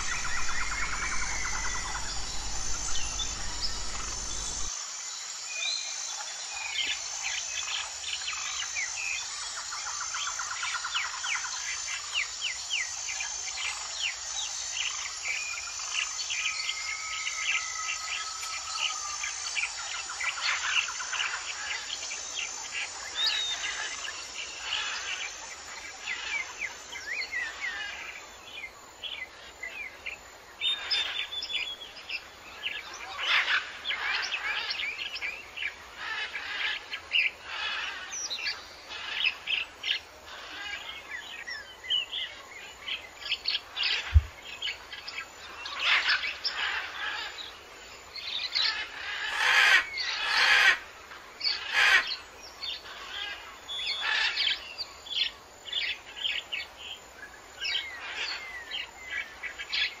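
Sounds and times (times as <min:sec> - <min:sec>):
birds chirping: 0:00.0 - 0:04.7, 0:30.7 - 0:47.5.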